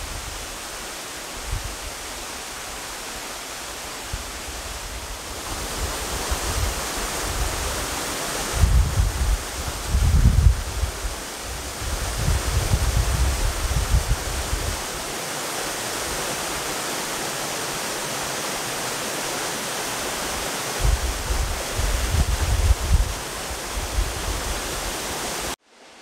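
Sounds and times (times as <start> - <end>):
waterfall rushing: 0.0 - 26.0
wind buffeting microphone: 4.1 - 14.9, 20.8 - 25.0.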